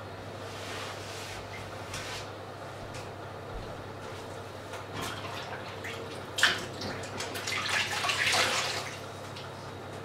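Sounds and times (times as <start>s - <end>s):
water running from a tap: 6.6s - 9.0s.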